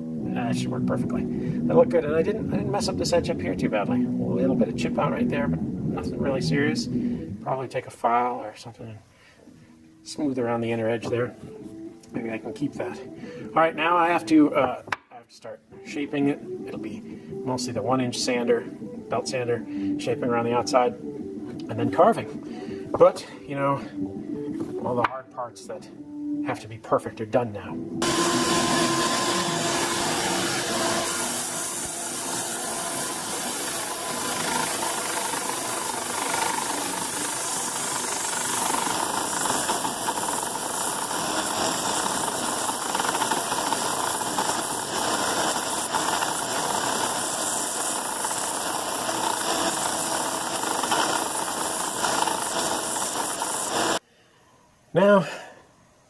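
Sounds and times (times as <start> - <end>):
bandsaw cutting wood: 28.0 - 54.0.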